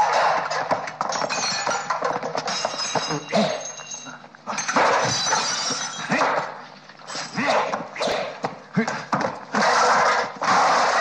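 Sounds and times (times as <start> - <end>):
crockery and kitchenware crashing: 1.0 - 6.5.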